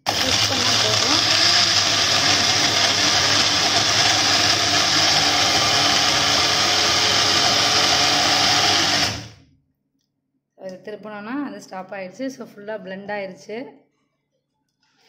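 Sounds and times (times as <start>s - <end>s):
blender motor running: 0.0s - 9.4s.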